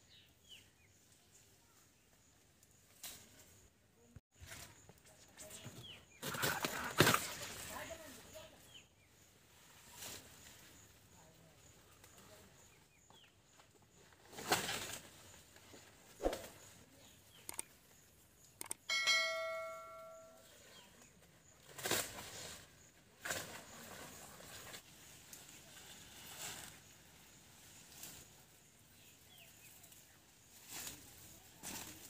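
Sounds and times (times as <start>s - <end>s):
bell-like ringing tone: 18.9s - 20.5s.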